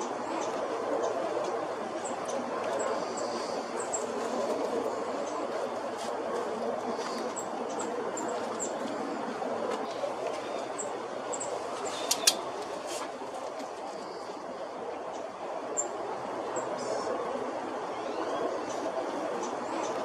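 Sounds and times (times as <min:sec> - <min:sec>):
steady rushing noise: 0:00.0 - 0:20.0
sharp clicks: 0:12.0 - 0:12.4.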